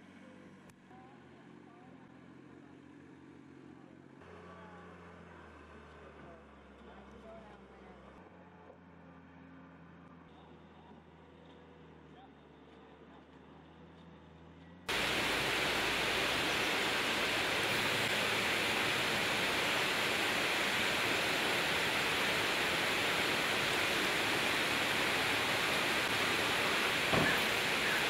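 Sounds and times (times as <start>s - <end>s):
loud steady rushing noise: 14.9s - 28.0s.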